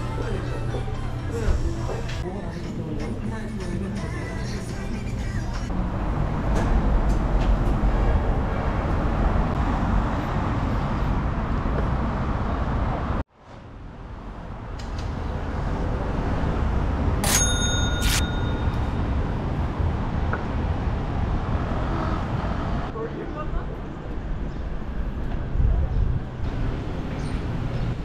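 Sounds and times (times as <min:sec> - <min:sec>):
traffic noise: 0:00.0 - 0:28.0
short bell-like ding: 0:17.2 - 0:19.0.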